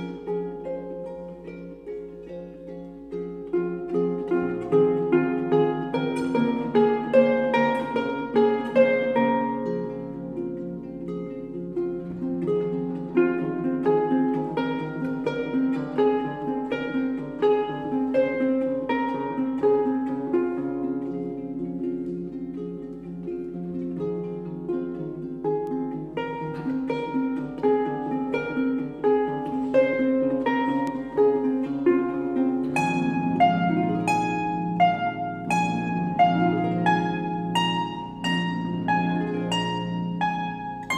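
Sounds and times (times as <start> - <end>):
harp plucked notes: 0.0 - 40.9.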